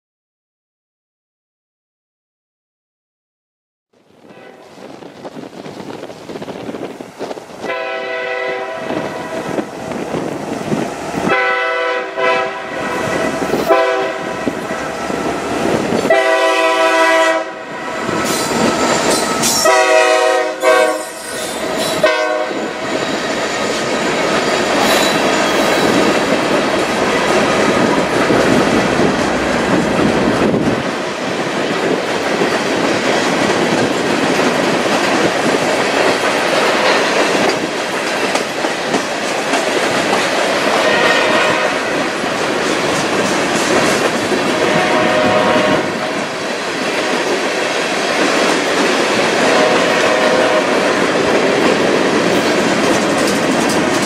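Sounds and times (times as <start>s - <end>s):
train air horn blasts: 4.2s - 4.8s, 7.6s - 9.6s, 11.2s - 22.8s, 40.7s - 42.0s, 44.5s - 46.3s, 49.4s - 50.8s
wheels clattering over rail joints: 51.0s - 54.0s.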